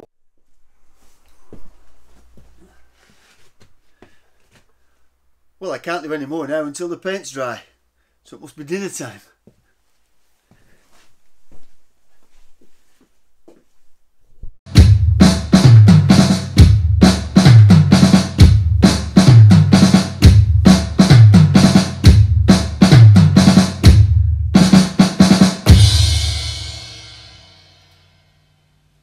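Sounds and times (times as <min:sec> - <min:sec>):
drum kit beat: 0:14.7 - 0:28.0.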